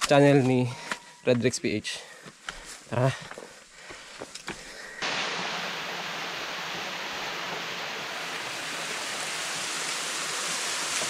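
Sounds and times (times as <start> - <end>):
waterfall splashing: 5.0 - 11.0.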